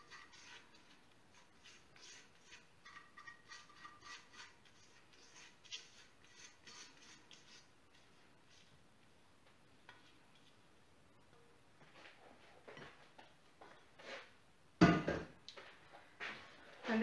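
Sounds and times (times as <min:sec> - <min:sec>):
spatula scraping metal bowl: 0:00.0 - 0:08.1.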